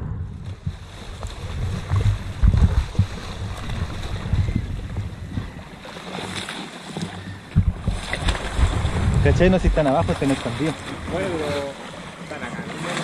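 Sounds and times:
dull low thuds: 0.0 - 5.8, 7.4 - 11.2
wind buffeting microphone: 0.0 - 6.0, 7.3 - 11.8
water lapping against boat: 0.4 - 13.0.

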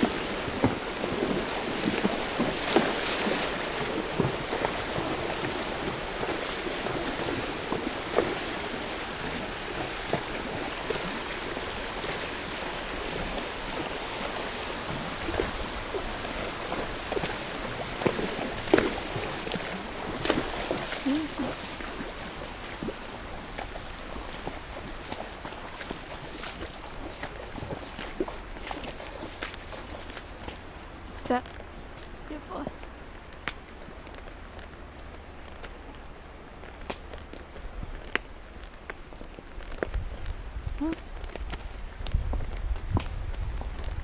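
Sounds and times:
creek water rushing: 0.0 - 44.0.

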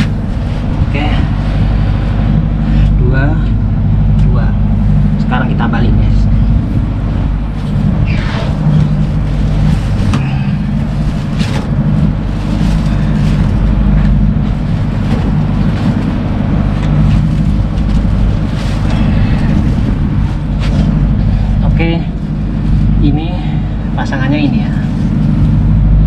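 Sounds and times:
ship engine droning: 0.0 - 26.0
rustling: 6.2 - 23.1.

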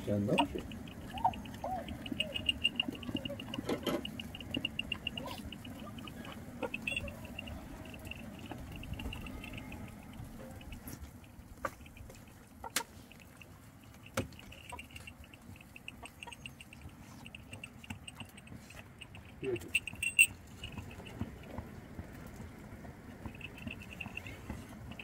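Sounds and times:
bird chirping in high trills: 0.3 - 12.3.

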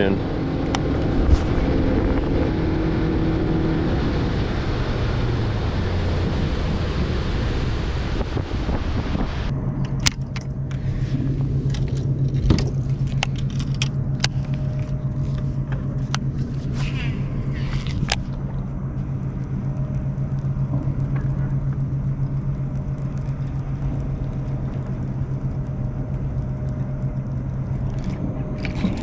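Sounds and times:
outboard motor running: 0.0 - 29.0
rushing wind and water: 0.0 - 29.0
steady low hum: 0.0 - 29.0.

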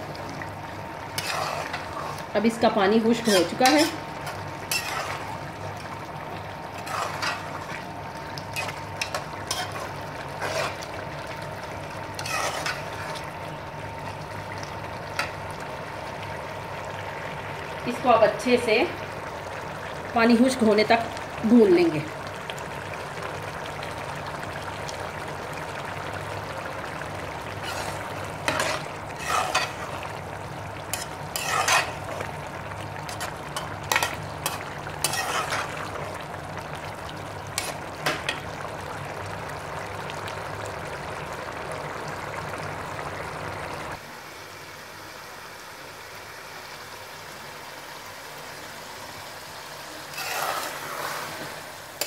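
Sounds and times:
curry sizzling in pan: 0.0 - 52.0
steel spoon scraping pan: 1.2 - 2.2, 3.1 - 5.3, 6.8 - 7.5, 8.6 - 10.8, 12.2 - 13.2, 27.6 - 30.0, 30.9 - 32.2, 33.1 - 35.8, 50.1 - 51.2.

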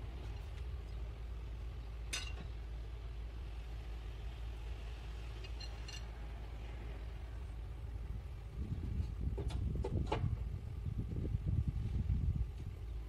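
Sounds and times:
low engine rumble: 0.0 - 13.0.

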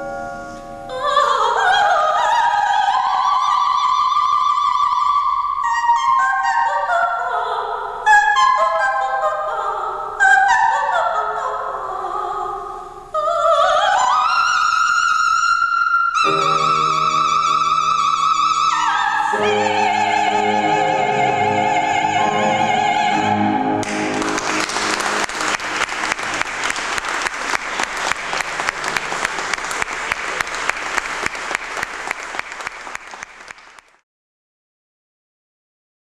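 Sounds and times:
grand piano chords: 0.0 - 1.4, 16.2 - 29.4
soprano singing with vibrato: 0.0 - 24.3
audience applause: 23.8 - 34.0.

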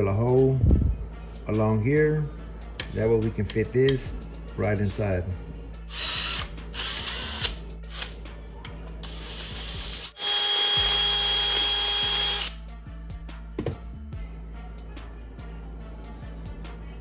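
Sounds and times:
cordless drill whining: 9.0 - 12.6.

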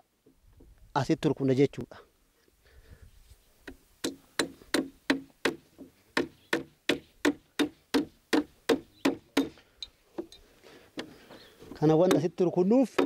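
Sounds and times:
hammer driving nails into wood: 3.7 - 9.6, 12.0 - 13.0.

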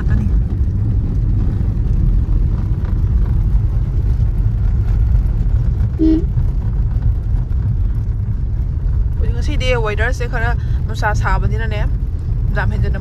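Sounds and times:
road noise: 0.0 - 13.0
vehicle engine rumble: 0.0 - 13.0
brief pitched tone: 6.0 - 6.3.

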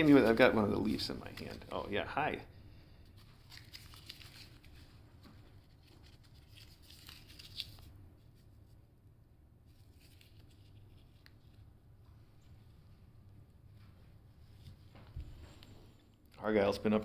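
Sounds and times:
leaf rustling and crinkling: 3.4 - 4.9, 5.6 - 7.9.

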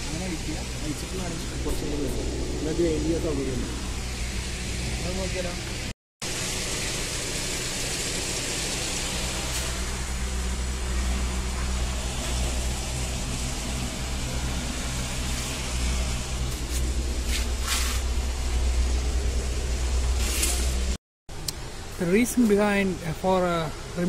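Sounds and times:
low engine hum: 0.0 - 24.0
short hissing sounds: 9.1 - 10.2, 16.5 - 18.1.

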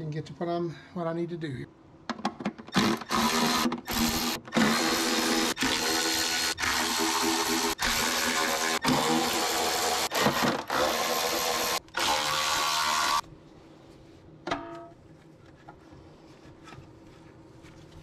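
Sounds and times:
cordless electric ratchet motor: 2.8 - 13.2.

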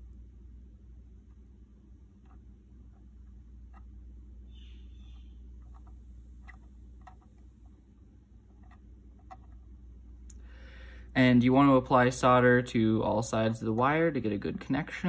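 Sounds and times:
solder ticking and crackling: 2.1 - 4.0, 5.0 - 10.4.

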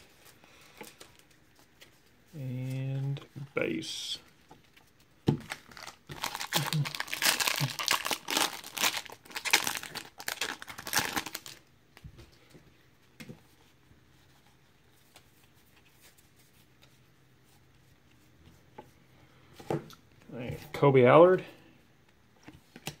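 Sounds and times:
wrapper tearing and crumpling: 5.5 - 11.6.

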